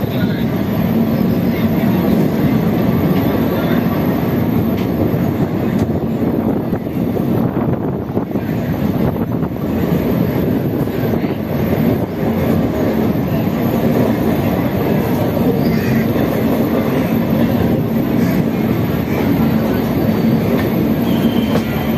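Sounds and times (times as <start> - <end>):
train wheels rumbling on rails: 0.0 - 21.9.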